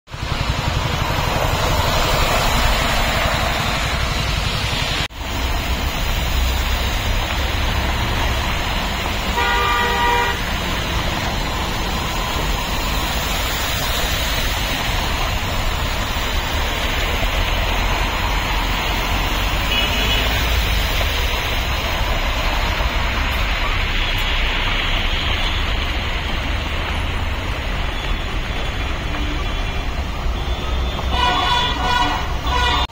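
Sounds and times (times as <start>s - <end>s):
traffic on flooded road: 0.1s - 32.9s
vehicle horn: 9.3s - 10.6s, 19.6s - 20.5s, 30.4s - 32.9s.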